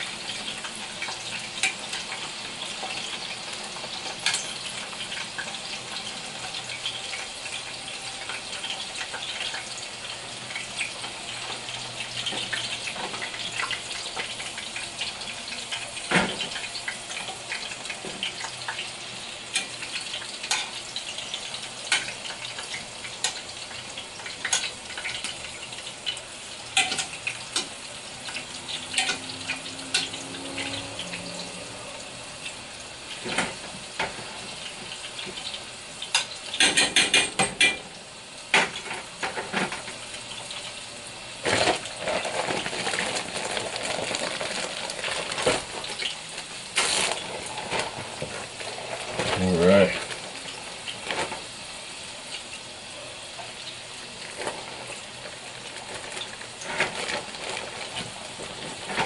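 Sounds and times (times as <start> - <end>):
food sizzling in hot oil: 0.0 - 59.0
utensils clicking against pan: 26.8 - 27.7, 28.3 - 30.2.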